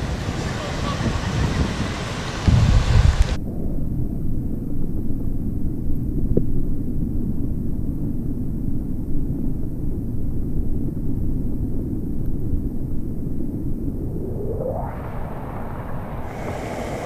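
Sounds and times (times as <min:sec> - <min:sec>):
wind buffeting microphone: 0:00.0 - 0:04.7, 0:12.1 - 0:17.0.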